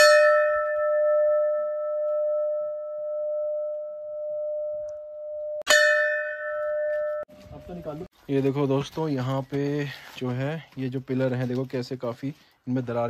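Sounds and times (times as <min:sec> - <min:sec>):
large bell ringing: 0:00.0 - 0:08.1
bell struck with bright clang: 0:05.7 - 0:07.8.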